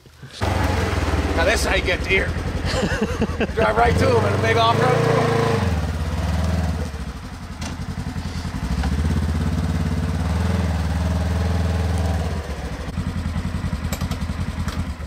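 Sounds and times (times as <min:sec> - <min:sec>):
utility vehicle engine running: 0:00.3 - 0:15.0.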